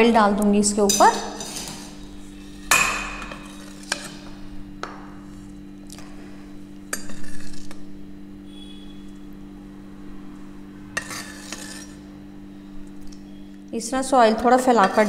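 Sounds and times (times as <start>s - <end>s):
steady low hum: 0.0s - 15.0s
spoon scraping: 0.9s - 4.3s, 6.9s - 7.8s, 11.0s - 12.0s, 14.7s - 15.0s.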